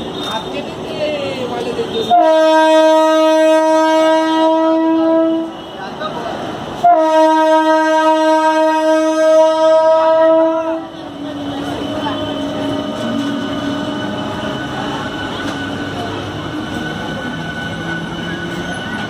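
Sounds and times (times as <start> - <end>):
train horn blasts: 2.0 - 5.8, 6.8 - 14.7.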